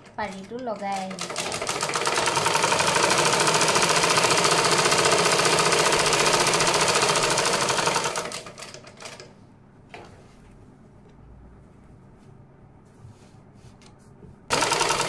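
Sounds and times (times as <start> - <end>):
sewing machine stitching: 0.0 - 9.3, 14.5 - 15.0.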